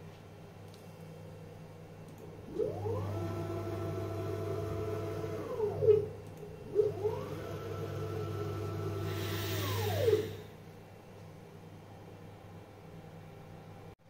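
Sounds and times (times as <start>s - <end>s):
steady low hum: 0.0s - 14.0s
stepper motor whine: 2.5s - 10.5s.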